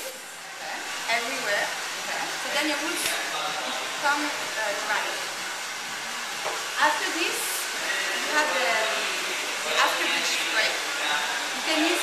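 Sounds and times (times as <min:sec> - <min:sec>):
hair dryer blowing: 0:00.0 - 0:12.0
women talking: 0:00.6 - 0:03.2, 0:04.0 - 0:05.2, 0:06.8 - 0:09.0, 0:11.6 - 0:12.0.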